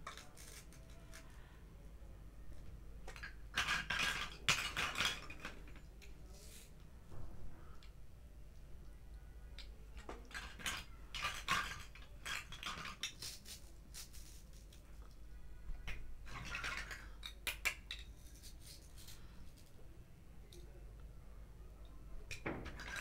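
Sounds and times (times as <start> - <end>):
plastic toy pieces clicking: 0.0 - 1.3, 15.9 - 19.7.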